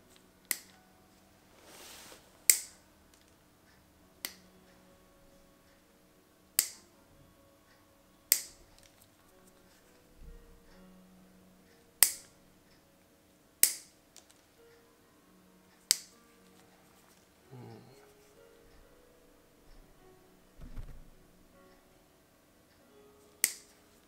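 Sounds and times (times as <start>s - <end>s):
toenail nippers snipping: 23.4s - 23.7s.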